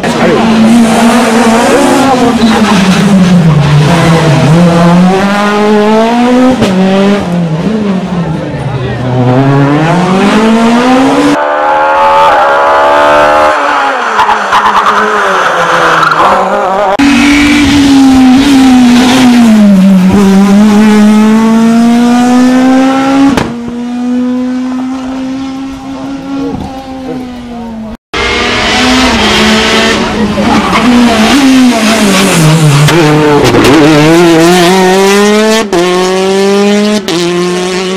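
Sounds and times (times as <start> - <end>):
rally car engines revving: 0.0 - 37.9.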